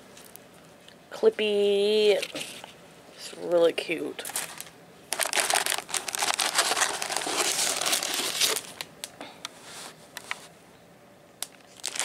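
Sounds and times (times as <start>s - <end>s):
tissue paper and cellophane crinkling: 4.2s - 8.9s, 11.6s - 12.0s
scattered crackles: 4.2s - 9.2s, 11.4s - 12.0s.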